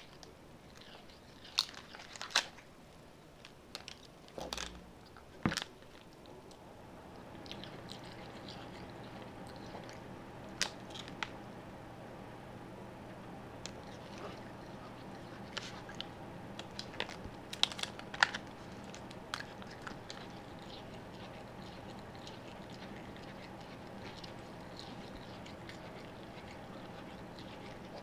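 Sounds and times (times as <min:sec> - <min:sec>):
plastic wrap clicks and crinkles: 0:16.6 - 0:19.5.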